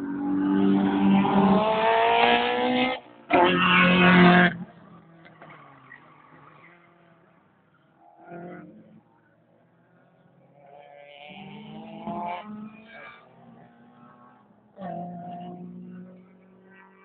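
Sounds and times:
car engine revving: 0.1s - 7.1s, 10.4s - 17.0s.

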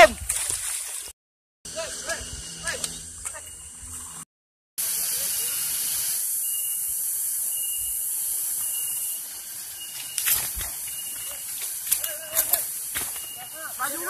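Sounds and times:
steady high-pitched hiss: 4.8s - 14.0s
footsteps on grass: 9.4s - 14.0s.

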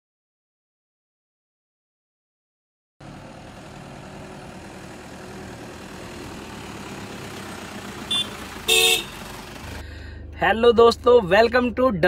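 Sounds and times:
road traffic noise: 3.0s - 12.0s.

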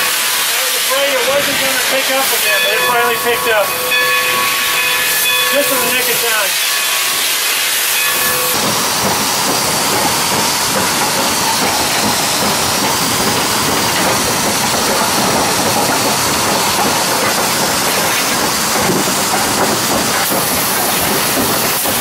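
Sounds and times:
steam hissing: 0.0s - 22.0s
wheels running on rails: 8.0s - 22.0s.

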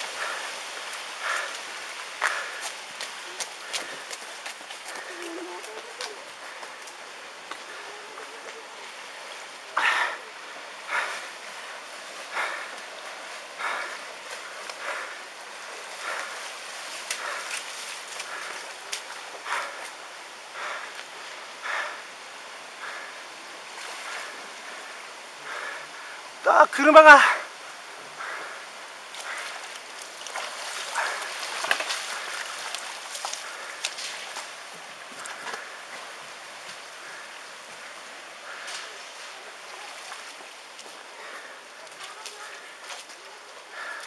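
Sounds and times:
water splashing: 0.0s - 22.0s, 27.0s - 44.0s
floodwater rushing: 0.0s - 44.0s
small splashes and clicks: 16.0s - 20.0s, 29.1s - 34.5s.

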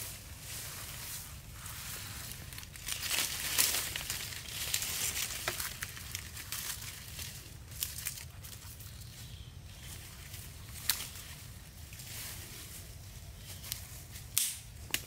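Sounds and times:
dry leaf litter rustling: 0.0s - 14.3s
crisp snaps: 13.7s - 15.0s.

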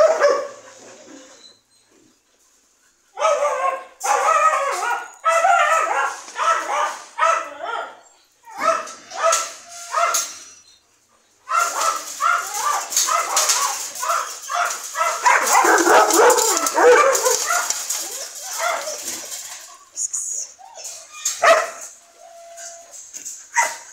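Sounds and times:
dogs barking: 0.0s - 0.7s, 3.2s - 10.3s, 11.4s - 19.9s, 21.3s - 21.9s, 23.5s - 23.9s.

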